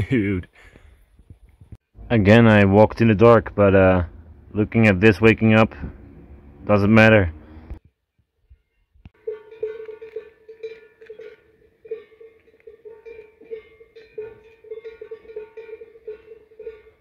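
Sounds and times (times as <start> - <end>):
cowbells clanking: 8.5 - 17.0.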